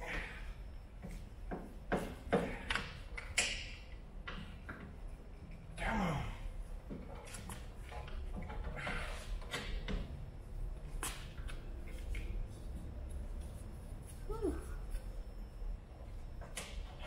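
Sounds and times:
person grunting: 0:05.8 - 0:06.4.

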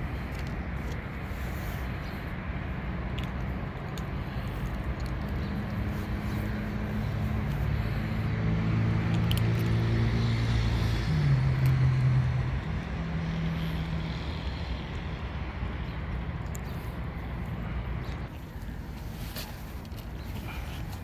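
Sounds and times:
motor engine droning: 0:04.2 - 0:18.3.

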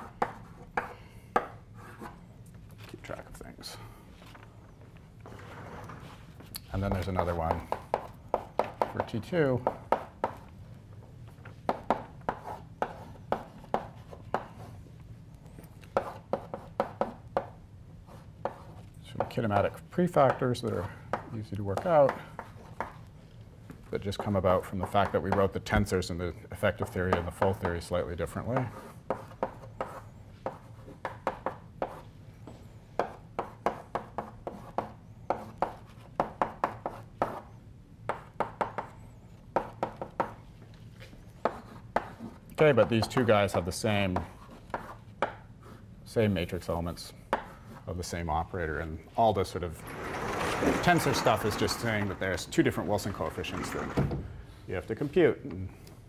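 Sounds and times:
chalk tapping and scraping on blackboard: 0:00.0 - 0:02.2, 0:05.4 - 0:10.5, 0:11.3 - 0:23.1, 0:24.1 - 0:25.5, 0:26.7 - 0:45.9, 0:47.3 - 0:48.1
low room hum: 0:00.0 - 0:56.0.

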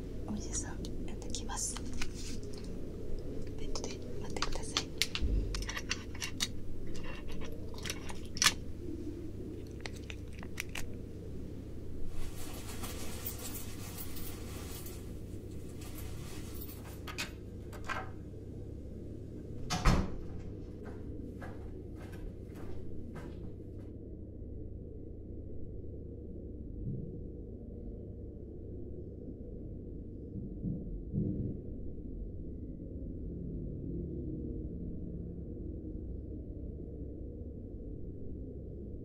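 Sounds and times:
steady low hum: 0:00.0 - 0:39.0
small clicks and taps: 0:01.7 - 0:08.6.

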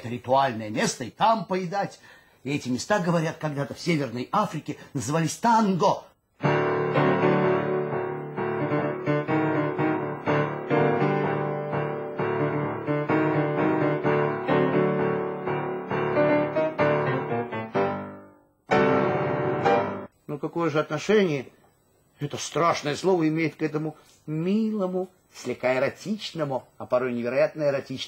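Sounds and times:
grand piano playing chords: 0:06.4 - 0:20.1.

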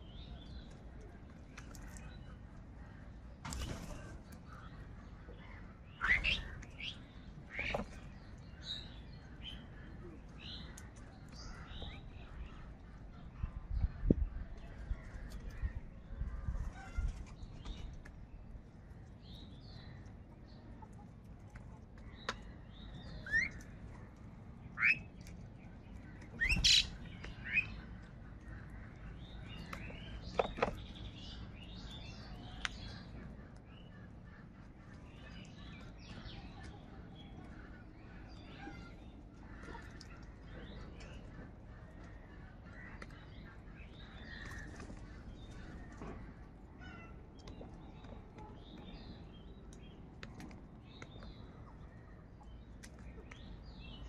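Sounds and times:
small birds chirping: 0:00.0 - 0:54.0
loud upsweeping bird calls: 0:05.5 - 0:07.9, 0:26.3 - 0:28.0.

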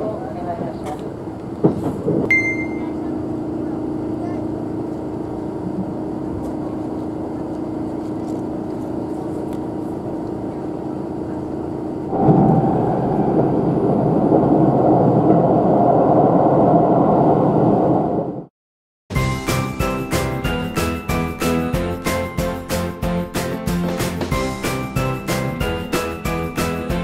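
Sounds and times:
train running noise from inside: 0:00.0 - 0:12.3.

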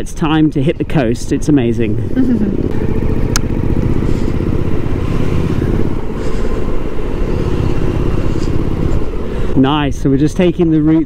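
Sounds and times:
motorcycle engine running: 0:00.0 - 0:09.6.

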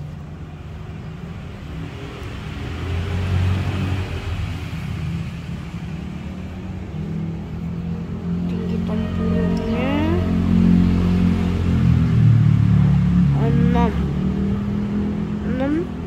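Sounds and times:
vehicle engine humming: 0:06.0 - 0:16.0.

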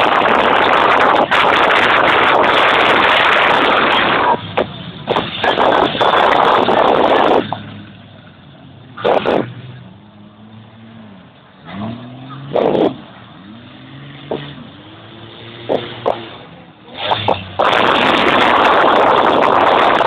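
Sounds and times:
distant engines revving: 0:00.0 - 0:20.0
race car engines passing: 0:00.0 - 0:20.0.

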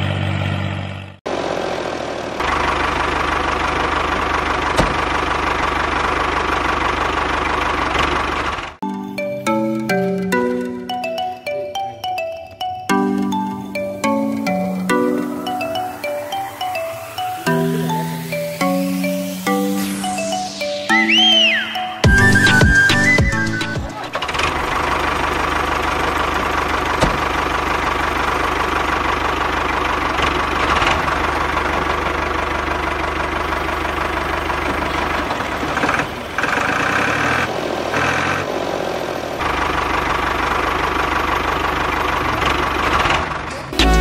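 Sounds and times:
small engine running: 0:00.0 - 0:08.8, 0:24.1 - 0:44.0.

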